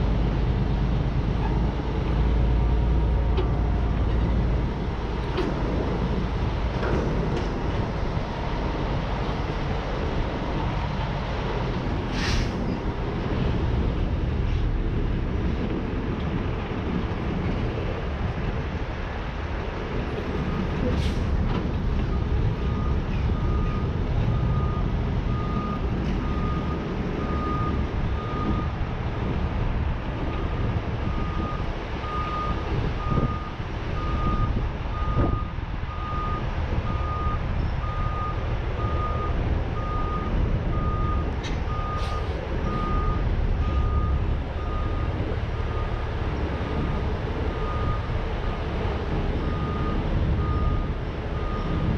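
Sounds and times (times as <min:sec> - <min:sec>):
diesel engine rumble: 0:00.0 - 0:51.9
reversing alarm beeping: 0:31.2 - 0:46.0, 0:49.4 - 0:51.9.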